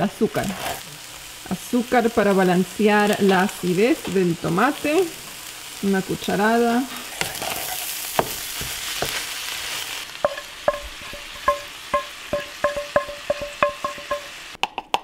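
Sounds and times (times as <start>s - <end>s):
meat sizzling in a frying pan: 0.0s - 14.6s
pan scraped out: 0.4s - 0.9s, 6.9s - 8.1s
wooden spoon knocking on metal pan: 8.2s - 9.2s, 10.2s - 14.4s.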